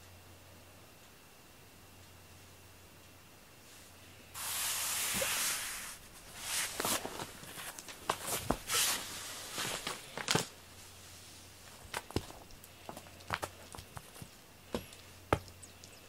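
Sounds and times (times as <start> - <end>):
loud rustle: 4.4 - 11.4.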